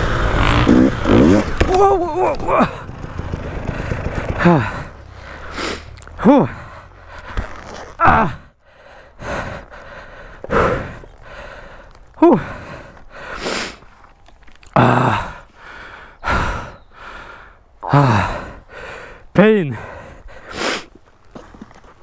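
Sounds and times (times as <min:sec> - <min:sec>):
man panting hard: 0:02.7 - 0:07.5, 0:08.2 - 0:13.9, 0:14.8 - 0:21.0
man groaning exhale: 0:03.7 - 0:07.3, 0:14.7 - 0:15.5, 0:17.8 - 0:18.6.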